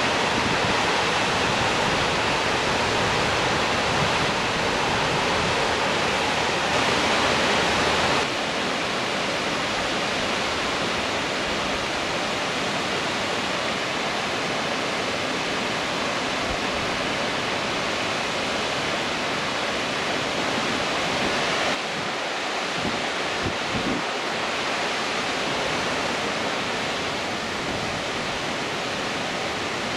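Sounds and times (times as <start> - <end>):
water rushing over rocks: 0.0 - 29.9.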